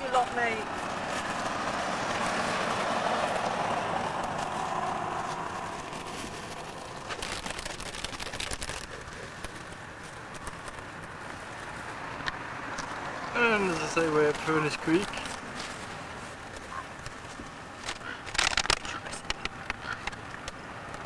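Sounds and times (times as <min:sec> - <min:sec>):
car driving past: 0:00.2 - 0:07.1
sharp crackling clicks: 0:05.3 - 0:11.2, 0:17.8 - 0:21.0.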